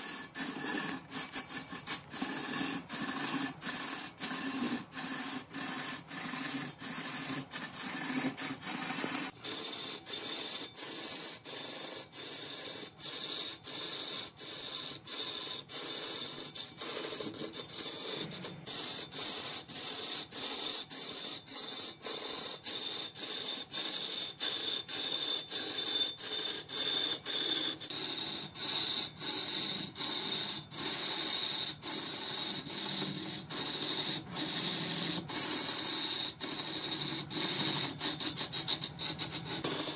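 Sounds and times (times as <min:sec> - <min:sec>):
lathe tool shaving wood: 0:00.0 - 0:12.0, 0:28.1 - 0:39.9.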